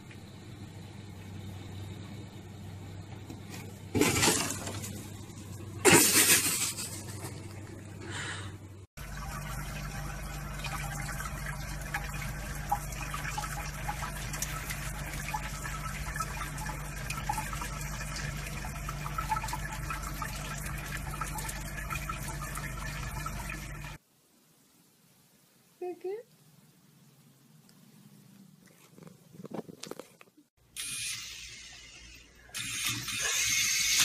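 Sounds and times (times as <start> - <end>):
water tap running into sink: 9.0 - 24.0.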